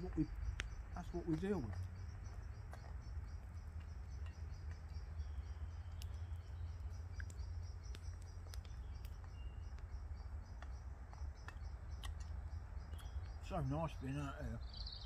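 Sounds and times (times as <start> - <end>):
sharp clicks: 0.0 - 3.0, 5.8 - 6.2, 7.2 - 9.9, 10.5 - 13.4.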